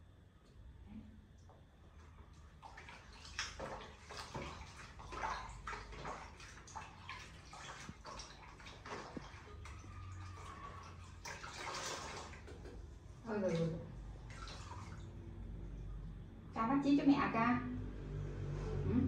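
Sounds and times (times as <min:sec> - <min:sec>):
bath water splashing: 0:02.1 - 0:15.7.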